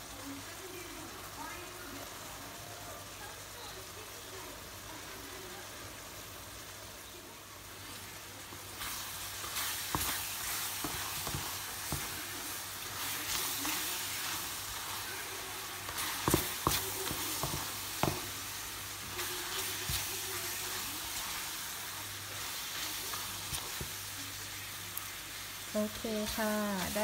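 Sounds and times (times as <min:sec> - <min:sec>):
fruit sizzling in syrup: 0:00.0 - 0:27.0
wooden spatula scraping: 0:07.8 - 0:24.2, 0:26.0 - 0:27.0
spatula knocking against pan: 0:16.2 - 0:18.3.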